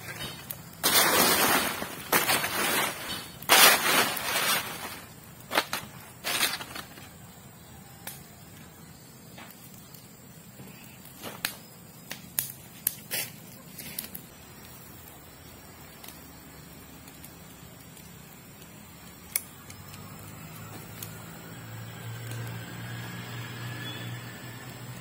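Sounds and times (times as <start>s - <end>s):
dry leaves rustling: 0.0s - 7.3s, 12.5s - 24.0s
twigs crackling in fire: 0.0s - 25.0s.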